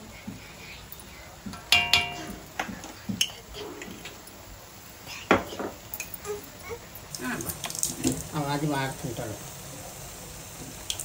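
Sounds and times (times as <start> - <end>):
utensils clanking against wok: 1.5 - 3.4.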